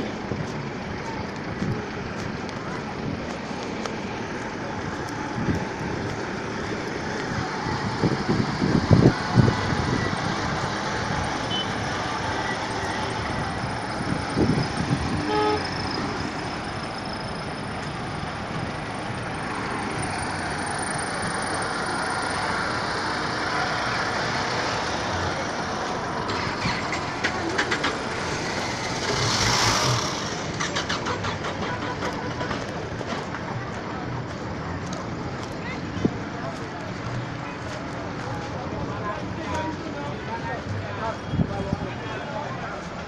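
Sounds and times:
street traffic rumble: 0.0s - 43.0s
car horn toot: 11.4s - 11.8s, 15.1s - 15.8s.

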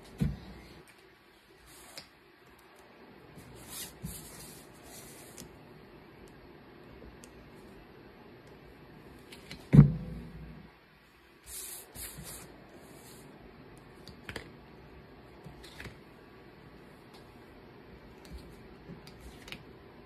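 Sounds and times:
scratchy hiss: 0.0s - 2.2s, 3.4s - 5.6s, 11.3s - 13.4s
loud thump: 9.7s - 10.4s.

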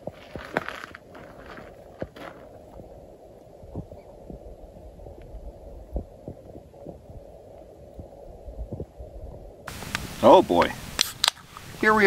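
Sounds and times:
wind rumble on microphone: 0.0s - 12.0s.

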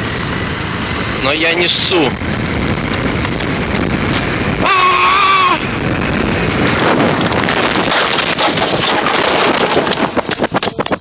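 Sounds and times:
wind on microphone: 0.0s - 11.0s
man's frightened cry: 4.6s - 5.8s
moped crashing and scraping: 5.8s - 10.9s.

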